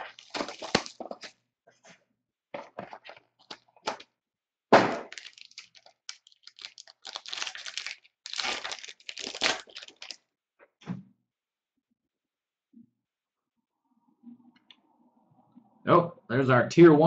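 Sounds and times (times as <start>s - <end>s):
plastic shrink wrap crackling: 0.0s - 1.3s, 5.0s - 10.2s.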